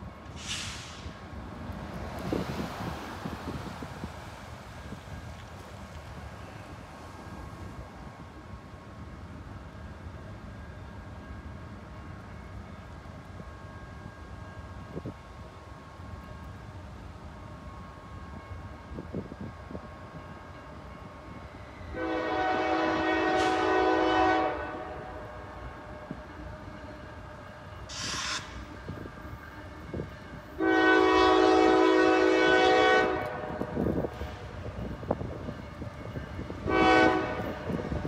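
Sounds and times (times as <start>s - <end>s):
locomotive air horn blasts: 21.9s - 26.8s, 27.9s - 34.3s, 36.6s - 38.0s.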